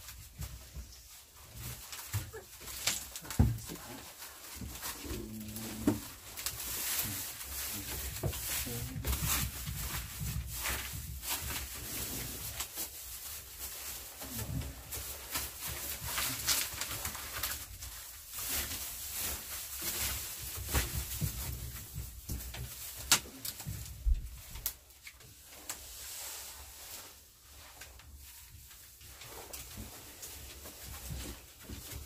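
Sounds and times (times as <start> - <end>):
rustling straw: 0.0 - 32.0
puppies crunching food: 1.6 - 12.8.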